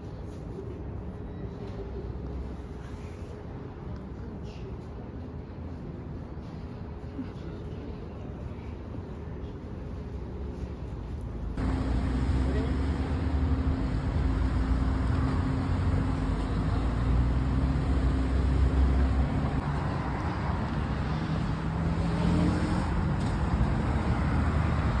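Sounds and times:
road traffic rumble: 9.0 - 25.0
engine hum: 11.5 - 25.0.

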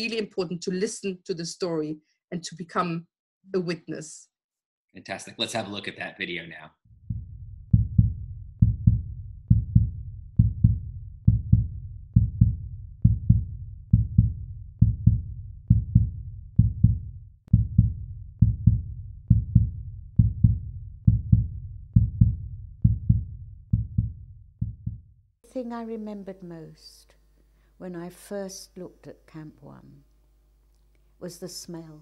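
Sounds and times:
slow heartbeat thumps: 7.0 - 25.2.

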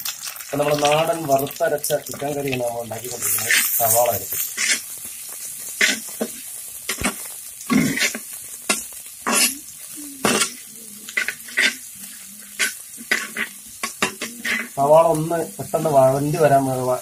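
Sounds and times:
onions sizzling in oil: 0.0 - 17.0
spoon scraping and knocking pot: 12.6 - 14.8.

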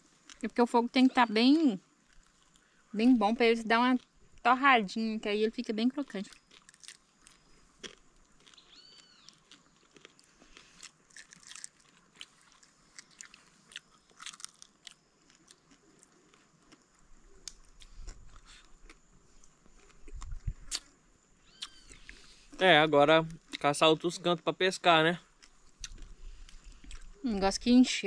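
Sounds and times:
chewing crispy fried fish: 2.0 - 2.8, 6.2 - 20.9, 25.4 - 27.2.

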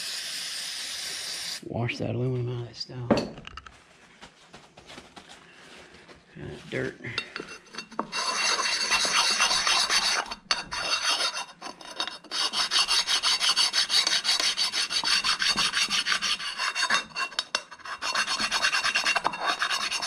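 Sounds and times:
sharpening stone scraping metal: 7.2 - 20.0.

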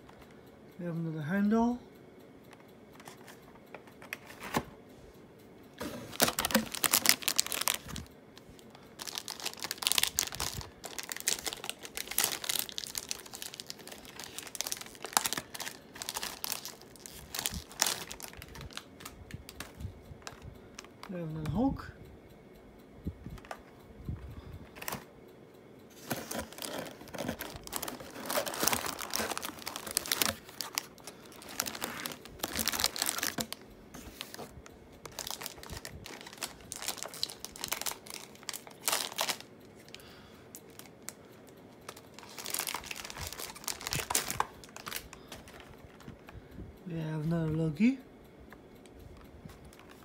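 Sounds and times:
foil wrapper crinkling: 6.0 - 21.1, 26.0 - 40.9, 41.8 - 46.3
foil pack tearing: 6.1 - 8.1, 9.0 - 18.9, 26.0 - 33.5, 35.1 - 39.5, 42.2 - 45.5.

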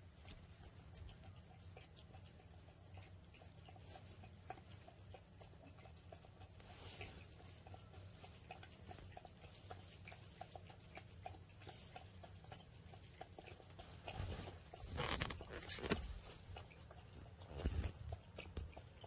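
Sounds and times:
cat lapping water: 0.0 - 19.0.

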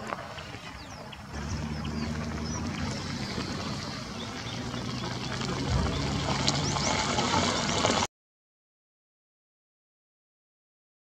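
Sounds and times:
vehicle engine idling: 0.0 - 8.1
high bird chirps: 0.8 - 7.2.

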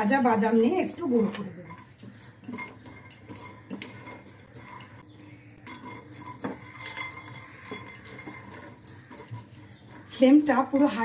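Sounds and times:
spatula scraping frying pan: 0.0 - 11.0.

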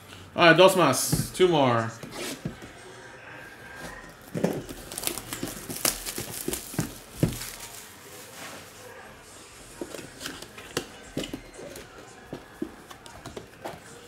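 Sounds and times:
plastic wrapping crinkling: 4.1 - 8.8.

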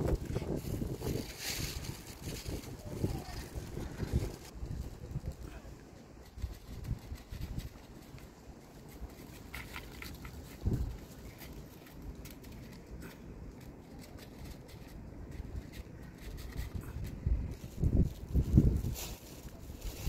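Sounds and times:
cat crunching dry kibble: 6.2 - 18.7.

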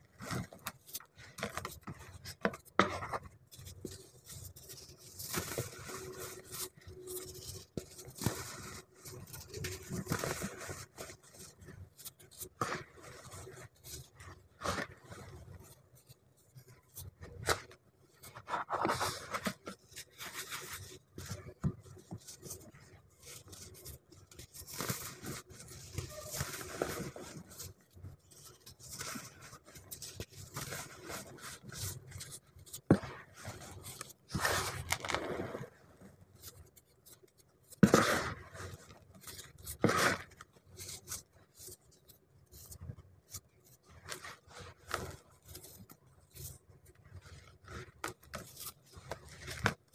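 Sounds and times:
hands crumbling powder blocks: 32.7 - 35.7.

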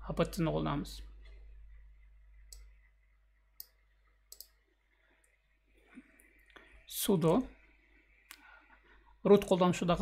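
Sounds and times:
computer mouse clicks: 2.5 - 2.8, 3.6 - 4.6.

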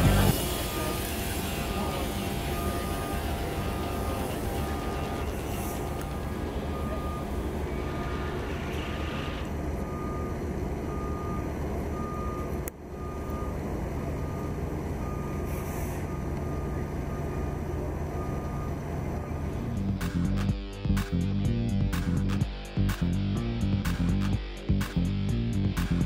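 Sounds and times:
low engine hum: 0.0 - 26.0
backup alarm beeping: 0.4 - 13.6, 14.2 - 20.0.

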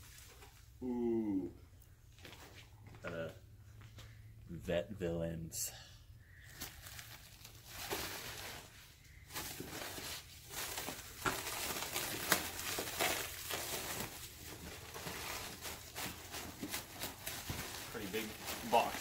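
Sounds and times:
plastic bags crinkling: 6.5 - 19.0.

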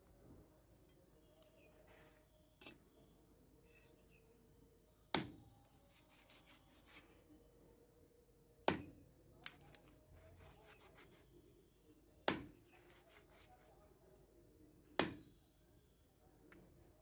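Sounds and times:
knife chopping on wooden block: 12.3 - 13.2.

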